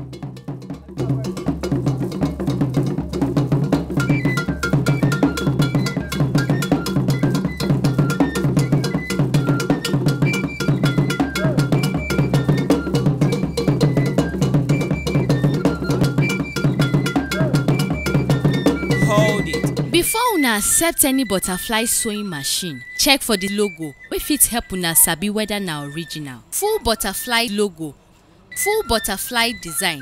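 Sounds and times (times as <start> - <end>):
cowbell-like bell pattern: 0.0 - 3.8
short high melody: 19.0 - 19.9.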